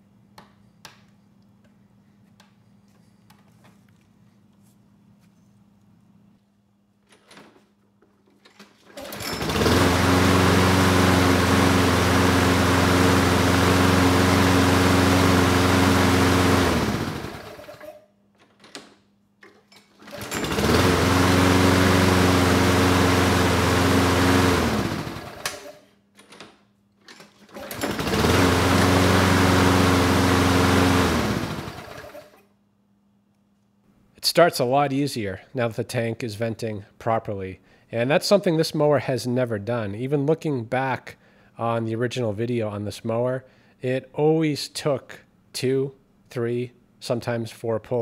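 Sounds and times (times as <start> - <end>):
engine winding down: 9.0 - 17.9, 20.1 - 25.8, 27.6 - 32.4
lawn mower engine running: 9.0 - 17.9, 20.0 - 25.8, 27.5 - 32.4.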